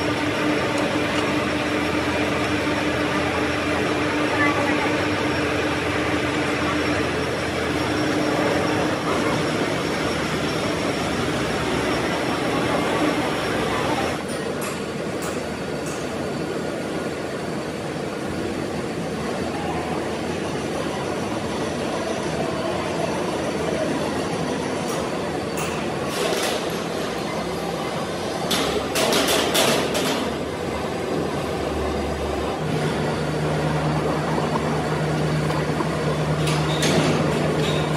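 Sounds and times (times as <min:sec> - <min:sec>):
machine tools humming: 0:00.0 - 0:37.9.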